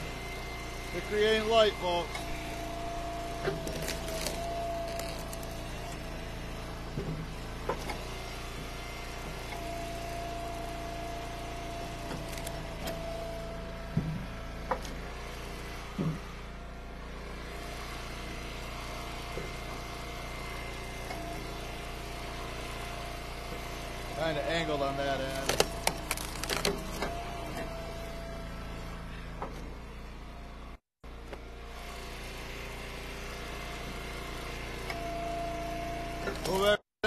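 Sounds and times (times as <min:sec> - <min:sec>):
hydraulic log splitter whining: 0:00.0 - 0:37.0
wood splitting cracks: 0:03.4 - 0:05.5, 0:25.3 - 0:27.2.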